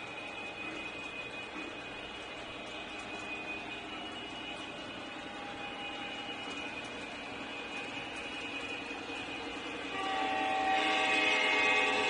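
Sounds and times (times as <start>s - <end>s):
model train running on rails: 0.0s - 12.0s
thin high whine: 0.0s - 12.0s.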